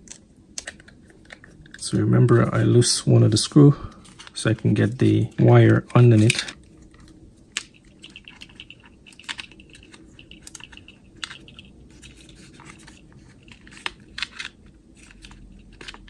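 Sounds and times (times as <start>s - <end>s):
plastic parts clicking: 0.0s - 1.9s, 4.0s - 16.0s
screwdriver turning screw in plastic: 7.6s - 16.0s.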